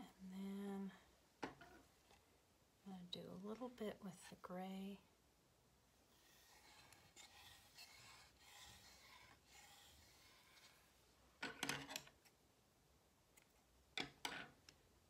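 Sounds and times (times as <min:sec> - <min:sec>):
yarn rubbing and rustling: 0:06.1 - 0:11.0.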